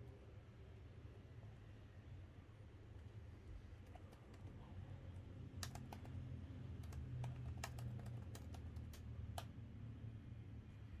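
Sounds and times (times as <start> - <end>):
laptop keyboard clicks: 5.5 - 9.5.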